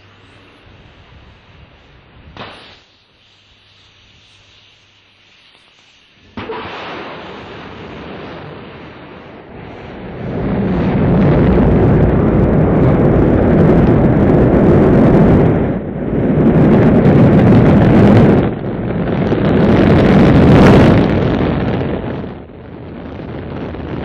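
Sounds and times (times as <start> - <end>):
rocket engines rumbling: 6.2 - 24.0.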